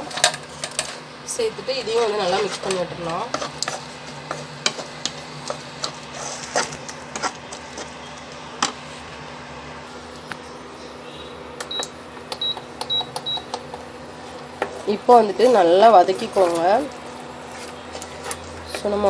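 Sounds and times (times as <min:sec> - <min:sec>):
spatula stirring in a pan: 0:01.7 - 0:09.1, 0:13.7 - 0:19.0.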